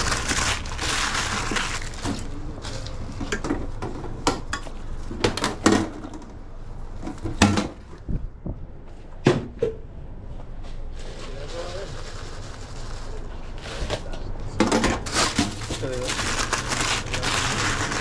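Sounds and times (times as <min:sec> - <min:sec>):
paper crinkling: 0:00.0 - 0:03.0, 0:15.0 - 0:18.0.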